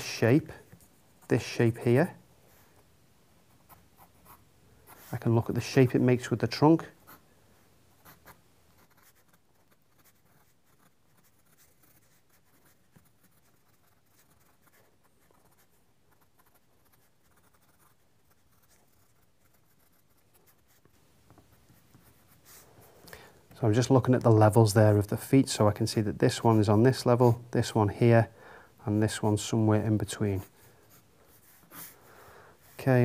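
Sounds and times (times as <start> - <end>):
pencil scratching on paper: 3.5 - 5.3, 8.0 - 22.8, 30.4 - 32.0.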